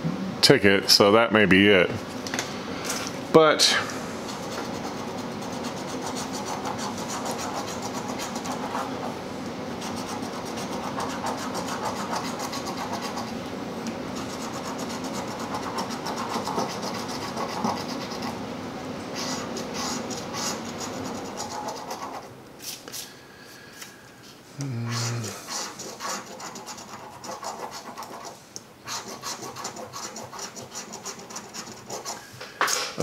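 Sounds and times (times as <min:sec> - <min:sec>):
coin scraping scratch card: 0:04.5 - 0:08.9, 0:09.8 - 0:13.3, 0:14.2 - 0:18.3, 0:19.2 - 0:22.3, 0:25.5 - 0:32.2.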